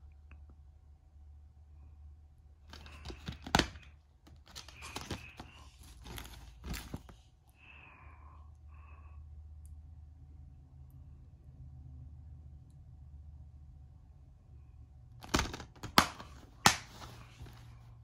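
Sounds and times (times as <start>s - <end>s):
plastic case snapping open: 2.7s - 7.0s, 15.2s - 17.2s
plastic case crackling and rustling: 2.7s - 7.2s, 15.2s - 17.7s.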